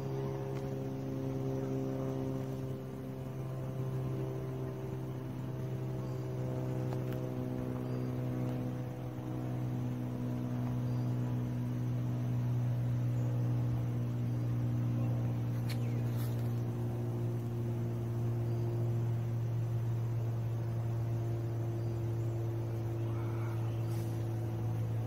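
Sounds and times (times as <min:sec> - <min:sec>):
propeller plane engine drone: 0:00.0 - 0:25.0.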